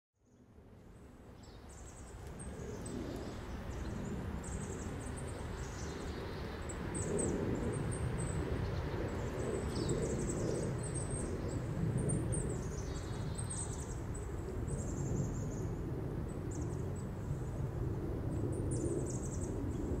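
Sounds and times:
small birds chirping: 1.0 - 15.7.

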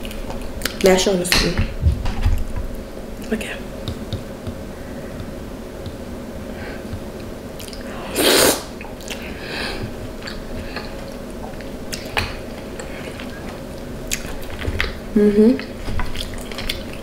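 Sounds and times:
person chewing wetly: 6.9 - 7.9, 8.8 - 9.4, 10.2 - 15.0, 15.6 - 17.0.

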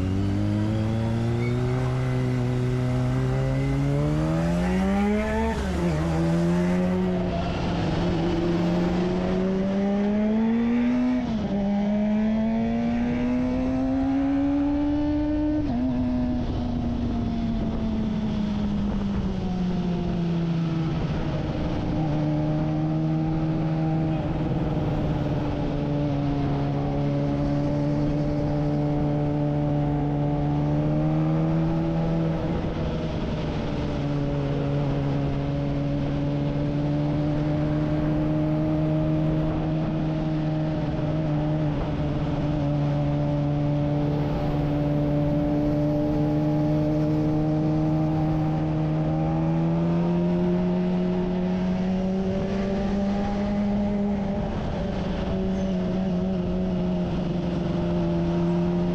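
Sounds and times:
motorcycle engine cruising: 0.0 - 58.9.

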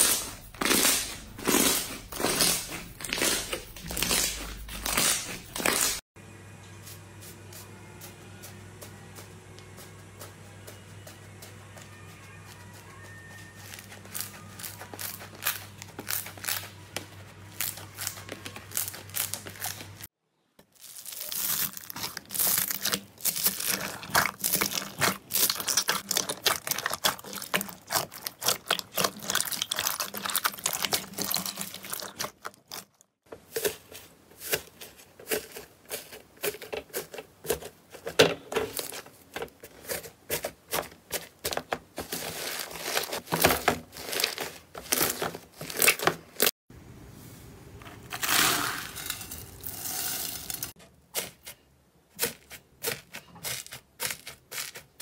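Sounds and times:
slime crackling and squelching: 0.0 - 6.0, 12.0 - 46.6.

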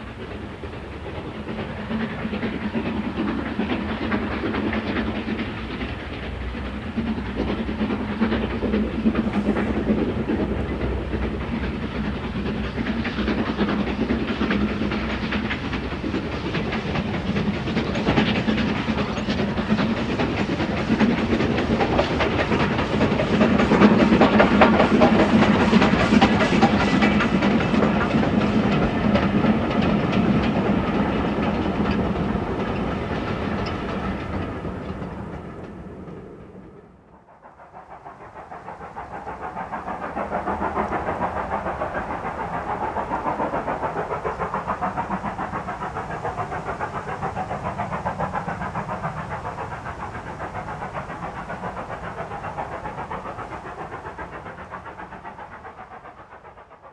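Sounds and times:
train wheels clattering over rail joints: 0.0 - 36.8
steam locomotive chuffing: 0.0 - 56.9.

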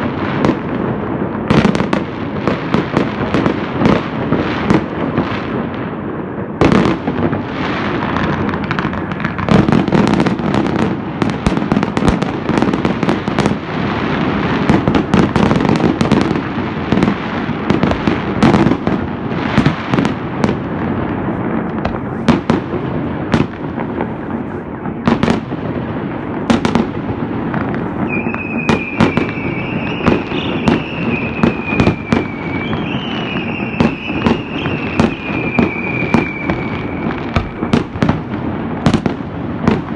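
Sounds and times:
fireworks bangs and pops: 0.0 - 39.9
fireworks crackling: 0.0 - 39.9
high wavering whistle: 28.1 - 37.8.

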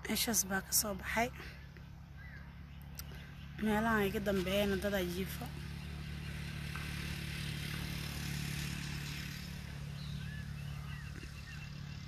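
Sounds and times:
engine humming: 0.0 - 12.0
bird chirps: 1.6 - 4.7, 9.7 - 12.0.

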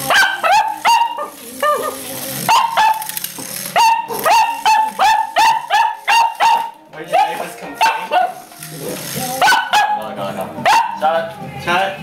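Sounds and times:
dog barking: 0.0 - 3.1, 3.7 - 8.4, 9.4 - 10.0, 10.6 - 11.0.

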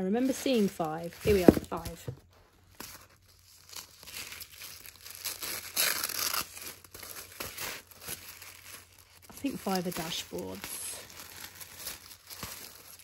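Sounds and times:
paper packaging crinkling: 0.0 - 13.0
paper tearing: 2.7 - 13.0.

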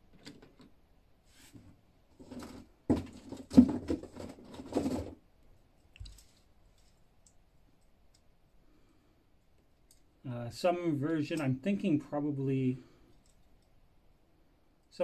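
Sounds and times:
plastic toys clacking and rattling: 2.2 - 5.2.

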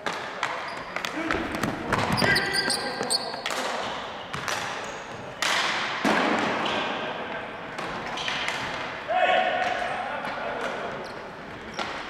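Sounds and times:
shoe squeaks: 0.6 - 1.1, 2.0 - 3.5, 4.2 - 5.2.

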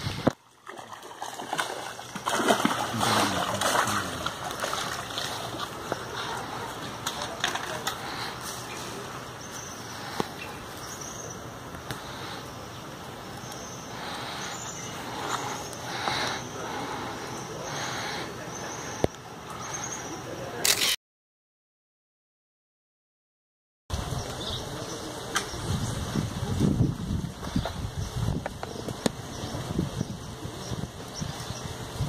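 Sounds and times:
water splashing from thrashing fish: 0.4 - 6.0.

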